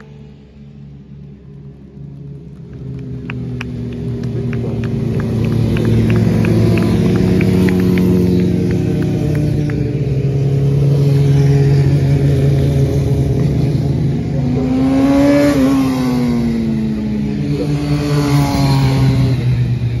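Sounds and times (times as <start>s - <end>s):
racing motorcycles passing: 0.0s - 20.0s.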